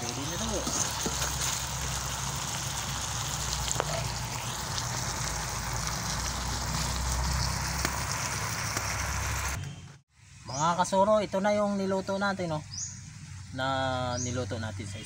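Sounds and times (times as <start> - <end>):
chicken sizzling in a wok: 0.0 - 9.6.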